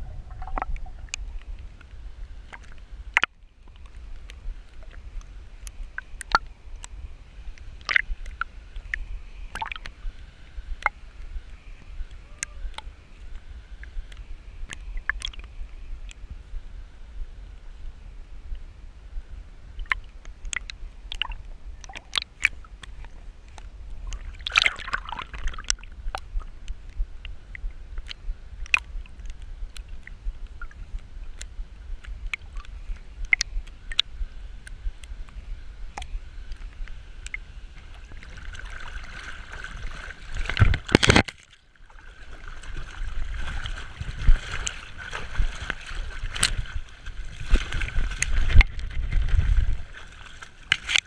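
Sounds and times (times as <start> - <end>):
water sloshing and gurgling: 0.0 - 16.6, 19.7 - 51.0
sharp splashes: 24.0 - 25.9, 38.2 - 51.0.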